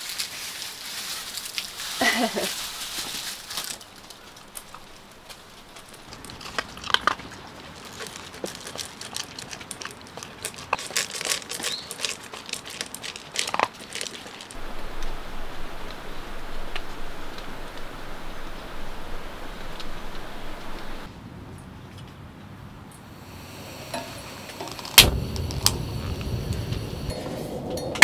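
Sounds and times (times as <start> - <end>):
material crinkling and rustling: 0.0 - 14.8.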